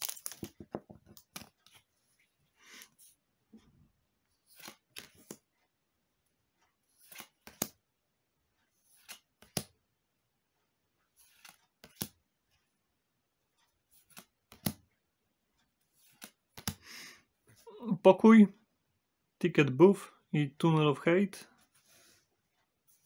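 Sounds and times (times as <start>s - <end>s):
cards flicked through: 11.2s - 12.2s, 14.0s - 14.8s.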